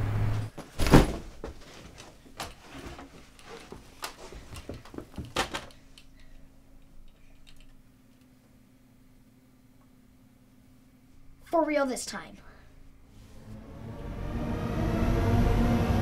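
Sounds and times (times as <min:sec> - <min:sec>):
faint room hum: 0:00.0 - 0:16.0
rustling and clicking of handled items: 0:00.5 - 0:08.4
backpack thumping on carpet: 0:00.6 - 0:01.6.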